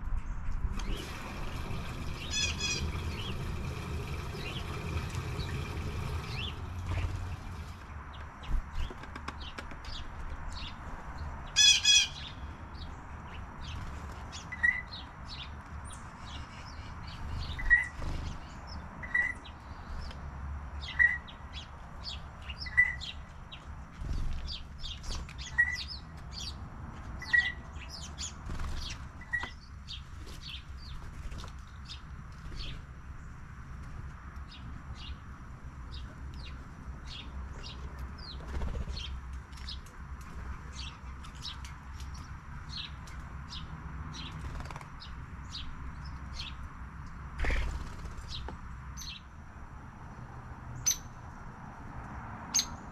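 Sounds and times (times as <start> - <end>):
songbirds chirping: 0.0 - 52.9
loud harsh bird call: 1.5 - 4.8, 11.5 - 12.5.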